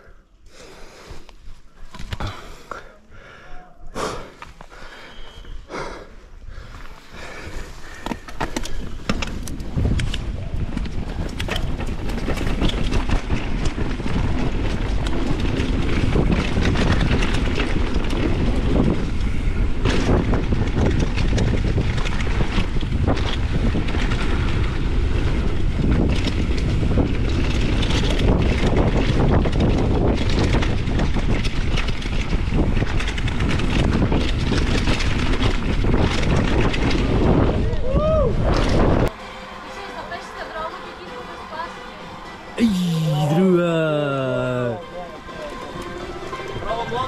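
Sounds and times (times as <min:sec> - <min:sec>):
wind on microphone: 0:06.5 - 0:39.1
bike rattling over bumps: 0:06.6 - 0:39.1.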